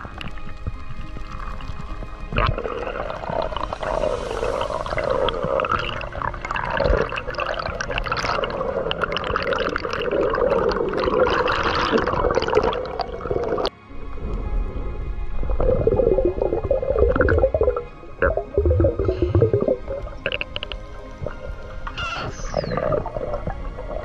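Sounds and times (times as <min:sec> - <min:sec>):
steady crackle: 0:00.0 - 0:24.0
water rushing and bubbling: 0:00.0 - 0:24.0.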